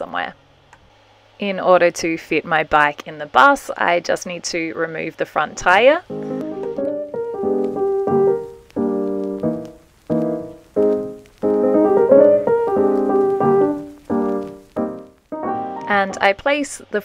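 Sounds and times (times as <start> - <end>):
piano music: 6.1 - 16.2.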